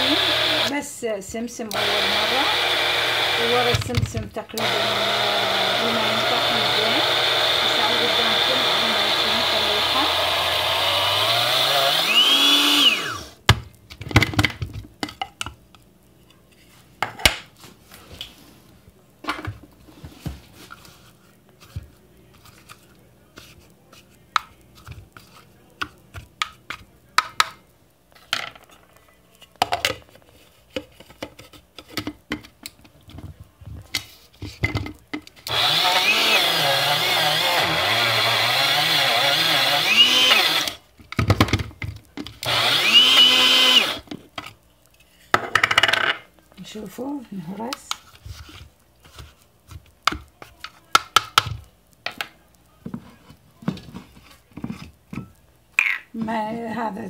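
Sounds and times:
electric blade grinder grinding: 0:00.0 - 0:00.8, 0:01.7 - 0:13.4, 0:35.5 - 0:40.8, 0:42.4 - 0:44.0
knocks and clicks handling grinder: 0:34.6 - 0:44.2.

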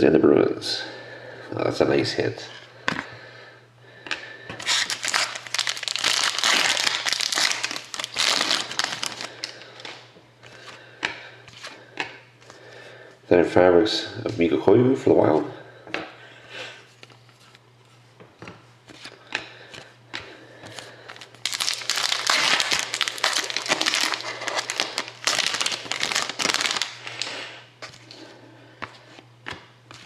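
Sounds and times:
wrapper crinkling: 0:04.6 - 0:10.0, 0:21.1 - 0:27.5.

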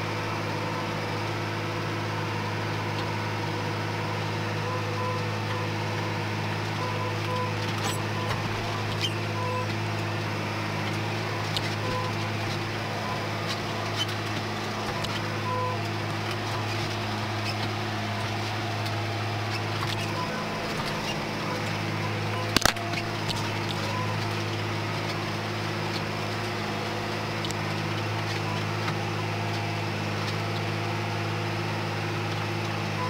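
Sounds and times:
tractor diesel engine running: 0:00.0 - 0:33.0
short beeps: 0:04.7 - 0:05.7, 0:06.8 - 0:09.7, 0:11.2 - 0:12.4, 0:14.8 - 0:15.8, 0:20.0 - 0:24.3.

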